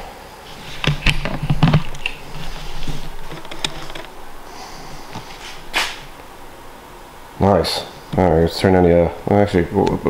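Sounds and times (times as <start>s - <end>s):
rustling swish: 2.2s - 6.2s.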